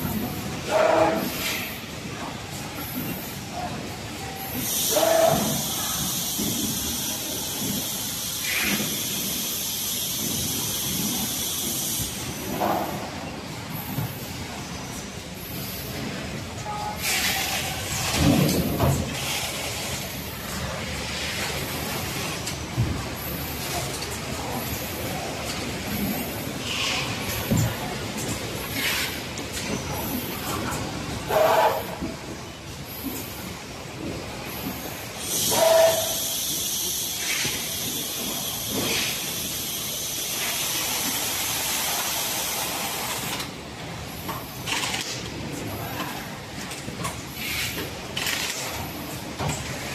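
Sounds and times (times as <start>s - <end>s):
loud high-pitched hiss: 4.5s - 13.0s, 34.9s - 43.4s.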